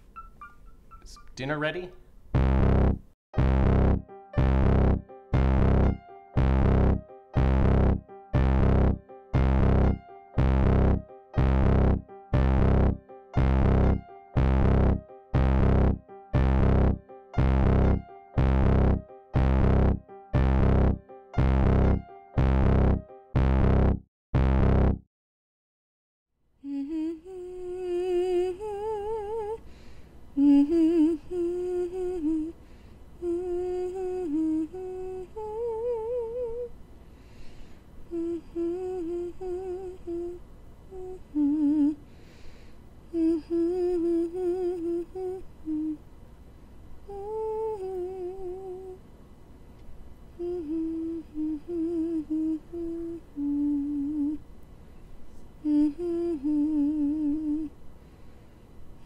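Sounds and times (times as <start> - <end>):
woman humming with vibrato: 3.5 - 21.0, 26.6 - 29.6, 30.4 - 32.6, 33.2 - 36.7, 38.1 - 42.0, 43.1 - 46.0, 47.1 - 49.0, 50.4 - 54.4, 55.6 - 57.7.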